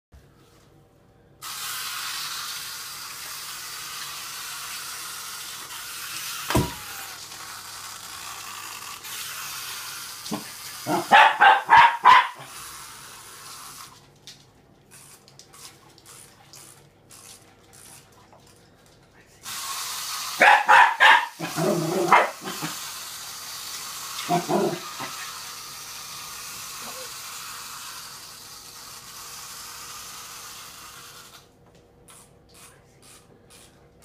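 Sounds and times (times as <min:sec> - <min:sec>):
dog barking: 0:10.3 - 0:12.5, 0:20.4 - 0:22.6.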